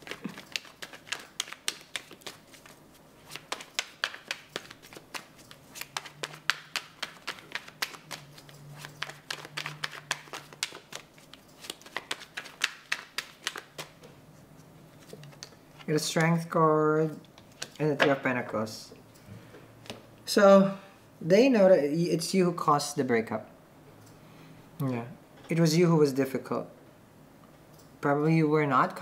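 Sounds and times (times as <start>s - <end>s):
cards being shuffled: 0.0s - 16.3s.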